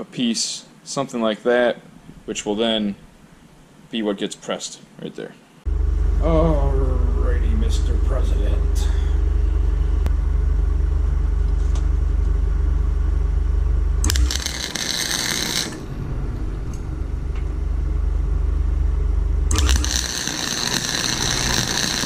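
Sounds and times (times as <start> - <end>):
steady low hum: 0.0 - 22.0
welding arc crackling: 14.0 - 16.8, 19.4 - 22.0.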